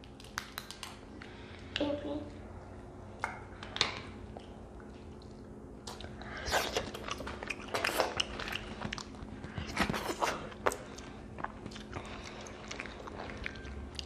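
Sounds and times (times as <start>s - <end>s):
chewing: 3.2s - 14.0s.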